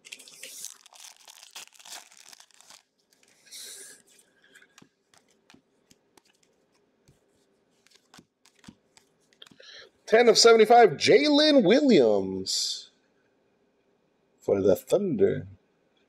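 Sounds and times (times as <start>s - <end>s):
wrapper tearing and crinkling: 0.0s - 3.5s
cards clicking: 7.8s - 9.6s.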